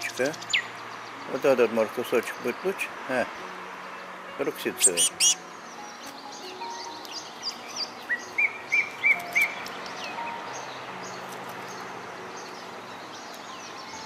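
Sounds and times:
bird calling clear notes: 0:04.5 - 0:10.7
faint high bird chirps: 0:04.8 - 0:05.4.

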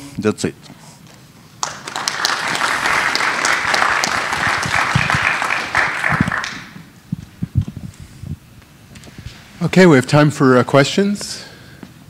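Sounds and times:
audience applauding: 0:01.6 - 0:06.8.

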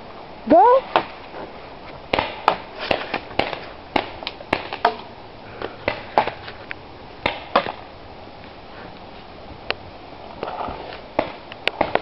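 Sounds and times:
paintballs hitting wooden bunker: 0:02.1 - 0:06.6, 0:07.2 - 0:07.8.

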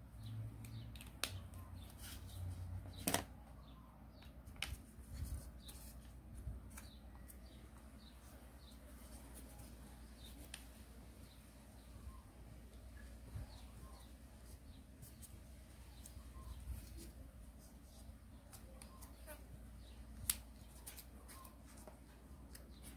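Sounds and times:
faint bird chirps: 0:11.2 - 0:17.2, 0:18.0 - 0:21.8
paper folding and creasing: 0:20.1 - 0:22.9.

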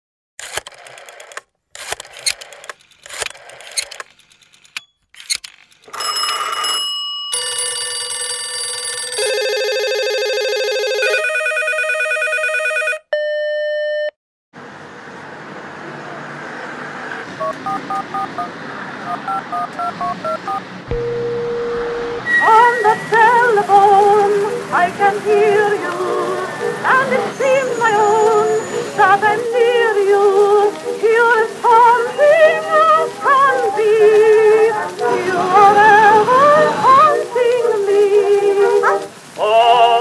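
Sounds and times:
mobile phone ringtones: 0:06.0 - 0:14.1, 0:17.4 - 0:18.5, 0:19.1 - 0:29.9
payphone keypad beeps: 0:12.7 - 0:14.1, 0:17.4 - 0:18.5, 0:19.1 - 0:24.6
short steady beep: 0:19.5 - 0:23.1
street hiss: 0:21.9 - 0:40.0.

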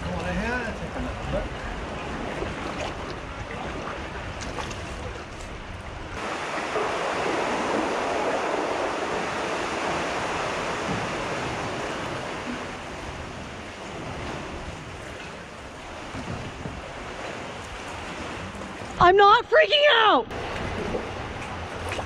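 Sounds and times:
ocean swell rushing into cave: 0:06.2 - 0:14.7.

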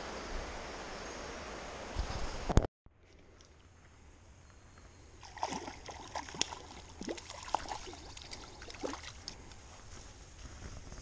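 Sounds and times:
fish splashing in water: 0:05.2 - 0:09.3.

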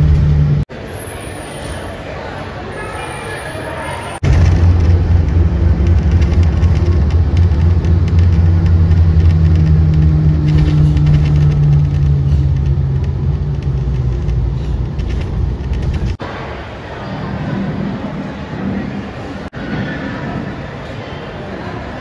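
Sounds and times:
car driving on road: 0:00.0 - 0:00.9, 0:04.2 - 0:16.6.

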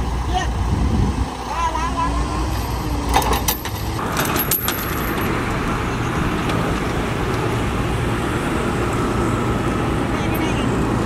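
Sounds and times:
heavy diesel engines running: 0:00.0 - 0:11.0
metal chain clinking: 0:02.6 - 0:05.4.

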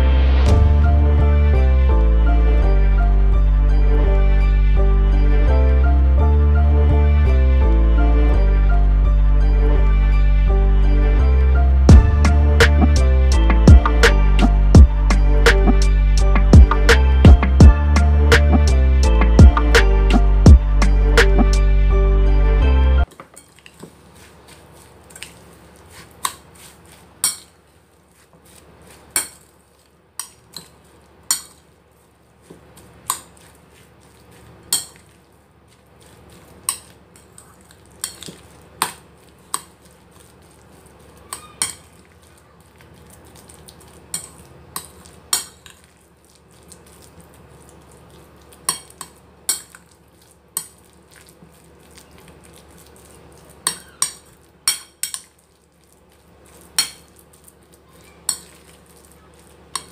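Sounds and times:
soft scraping of mixture: 0:23.0 - 0:59.9
metal utensil clinking on bowl: 0:36.7 - 0:39.7.

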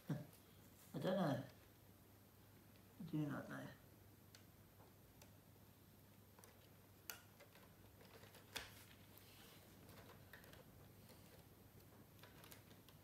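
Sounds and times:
faint clicks and taps: 0:04.2 - 0:05.4, 0:06.0 - 0:13.0.

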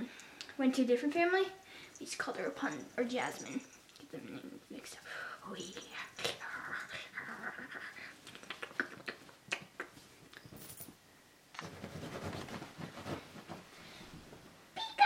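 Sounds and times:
rustling fabric: 0:11.6 - 0:14.8.

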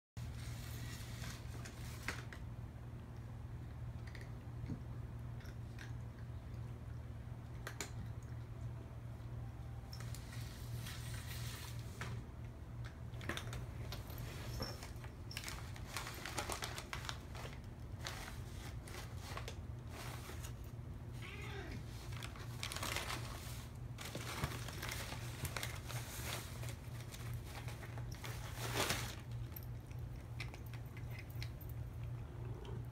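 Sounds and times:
paper bag rustling and crinkling: 0:13.8 - 0:20.7, 0:21.9 - 0:29.6.

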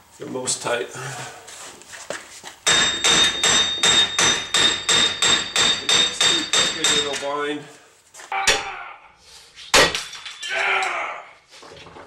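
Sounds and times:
hammer striking metal: 0:02.6 - 0:07.3, 0:08.4 - 0:08.8.

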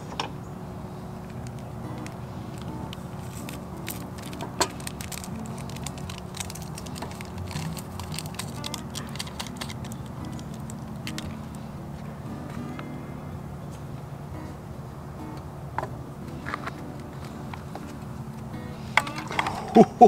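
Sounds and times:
soft background music: 0:00.0 - 0:20.0
light clicks and clatter: 0:01.3 - 0:11.6.

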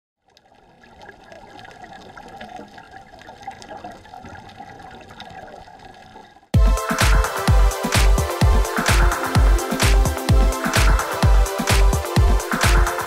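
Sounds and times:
loud music with heavy beat: 0:06.6 - 0:13.0.

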